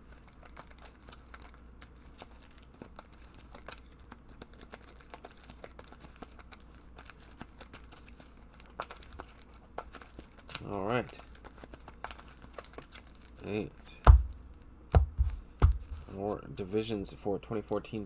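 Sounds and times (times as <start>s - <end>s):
cards shuffled by hand: 0.0s - 13.8s
low steady hum: 0.0s - 18.0s.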